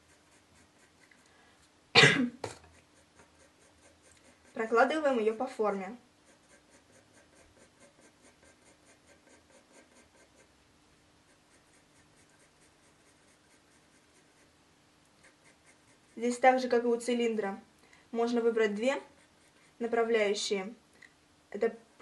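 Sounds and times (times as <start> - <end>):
pencil scratching on paper: 0.0 - 1.3, 2.5 - 10.6, 11.2 - 16.8, 18.3 - 20.2.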